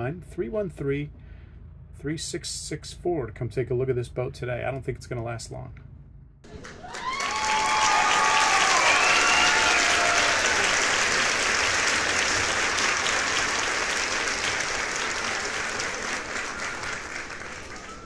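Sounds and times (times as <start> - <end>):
applause: 6.5 - 18.0
gliding cheer: 6.5 - 18.0.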